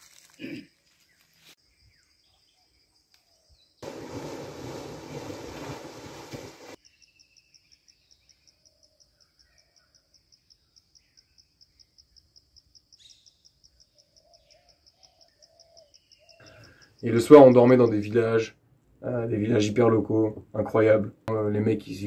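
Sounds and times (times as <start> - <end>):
insects chirping: 0.0 - 18.0
water splashing: 3.8 - 6.8
bird calls: 12.9 - 17.1.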